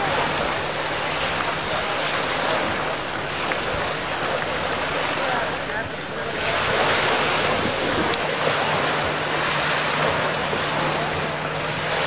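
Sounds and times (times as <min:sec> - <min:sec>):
wind on microphone: 0:00.0 - 0:09.3
waves washing: 0:00.0 - 0:12.0.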